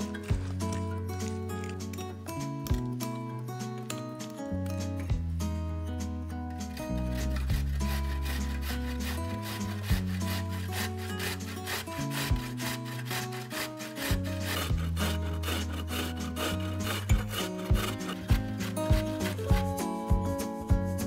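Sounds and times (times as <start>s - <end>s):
background music: 0.0s - 21.0s
carrot grated on metal grater: 6.7s - 20.0s.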